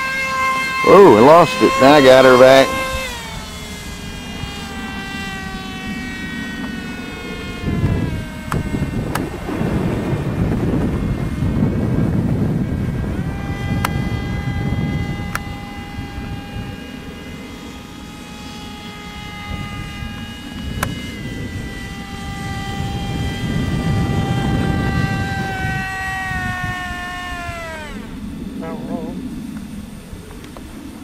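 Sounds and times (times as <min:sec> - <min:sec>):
model airplane motor whining: 0:00.0 - 0:31.0
wind rumble on microphone: 0:01.0 - 0:31.0
sharp clicks: 0:08.5 - 0:09.3.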